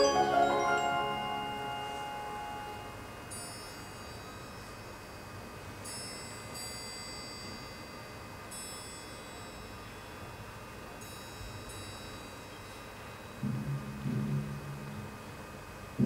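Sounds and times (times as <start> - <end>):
high-pitched metal chimes: 0.0 - 4.9.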